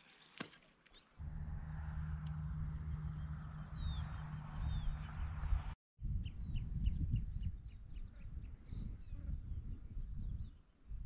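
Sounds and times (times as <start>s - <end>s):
low rumble: 1.2s - 7.5s
bird chirping: 2.8s - 5.4s.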